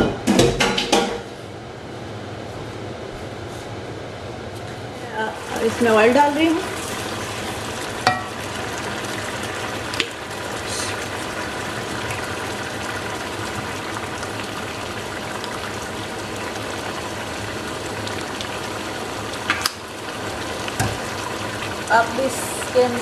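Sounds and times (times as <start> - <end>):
meat sizzling in oil: 5.4 - 23.0.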